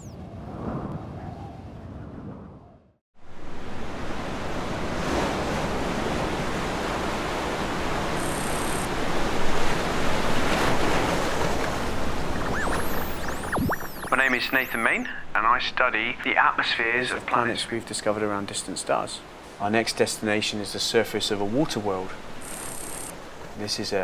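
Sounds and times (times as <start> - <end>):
wind: 0.0 - 24.0
ocean waves: 3.2 - 13.4, 14.0 - 24.0
sweeping electronic tones: 8.2 - 8.9, 11.8 - 15.8, 22.4 - 23.1.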